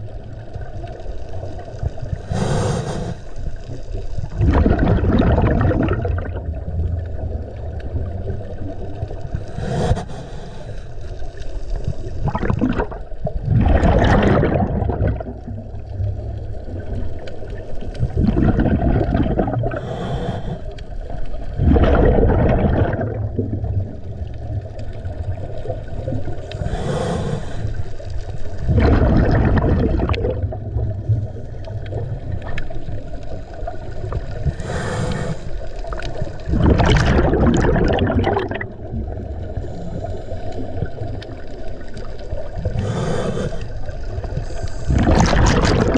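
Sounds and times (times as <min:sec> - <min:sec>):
exhaled bubbles gurgling: 0:00.0 - 0:45.9
low underwater rumble: 0:00.0 - 0:45.9
diver breathing through regulator: 0:02.2 - 0:03.4, 0:09.4 - 0:11.1, 0:18.6 - 0:20.9, 0:26.4 - 0:28.0, 0:34.4 - 0:35.8, 0:42.6 - 0:45.9.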